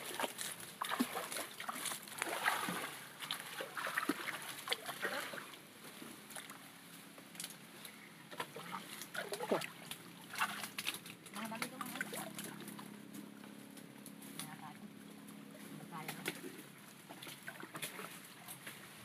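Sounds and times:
water splashing: 0:00.0 - 0:05.6, 0:08.3 - 0:12.9, 0:16.2 - 0:18.4.

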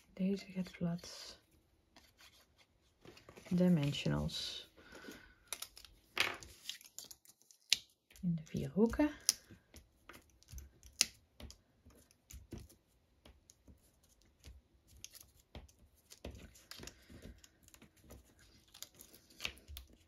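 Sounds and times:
paper rustling: 0:04.8 - 0:07.8.

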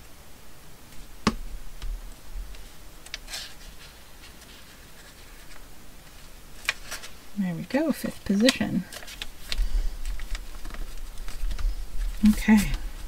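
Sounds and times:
paper rustle: 0:02.5 - 0:07.2, 0:07.9 - 0:13.0.

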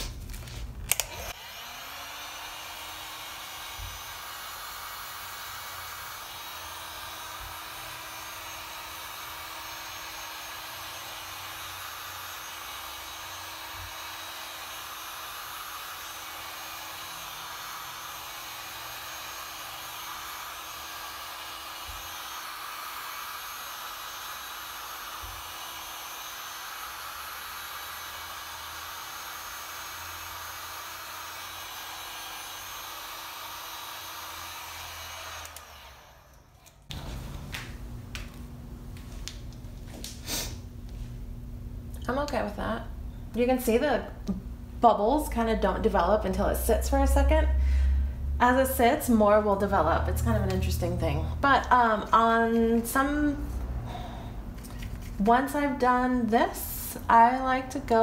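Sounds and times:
heat gun blowing air: 0:00.0 - 0:37.2, 0:40.1 - 0:40.7.

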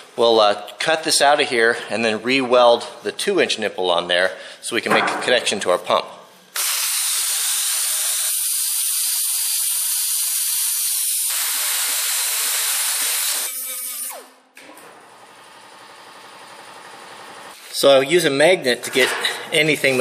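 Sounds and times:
plasma cutter hissing: 0:06.6 - 0:13.4.

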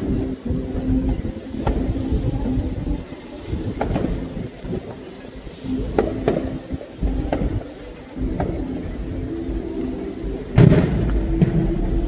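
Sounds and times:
fireworks booming: 0:00.0 - 0:05.1, 0:05.7 - 0:09.7, 0:10.3 - 0:12.0
sharp firework cracks: 0:10.6 - 0:11.9.

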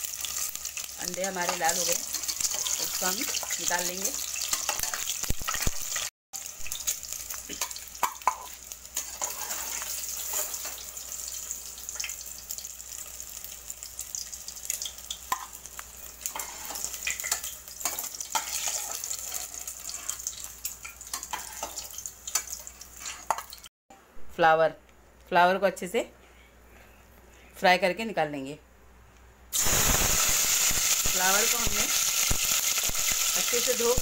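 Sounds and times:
hot oil sizzling: 0:00.0 - 0:23.7, 0:29.5 - 0:34.0.

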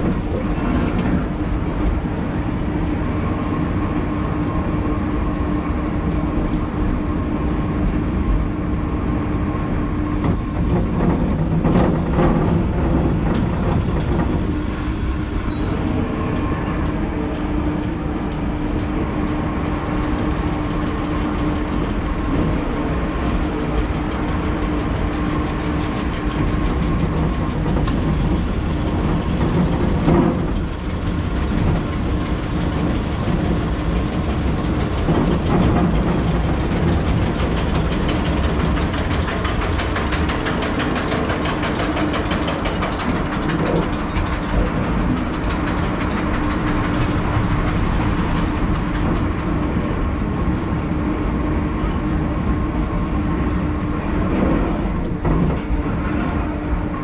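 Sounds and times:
constant hum: 0:00.0 - 0:57.0
ride car wheels rumbling: 0:07.4 - 0:57.0
ride car clattering: 0:19.2 - 0:51.2.

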